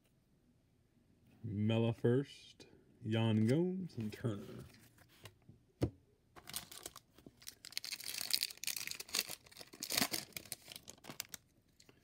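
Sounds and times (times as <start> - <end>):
foil wrapper tearing and crinkling: 6.4 - 11.4.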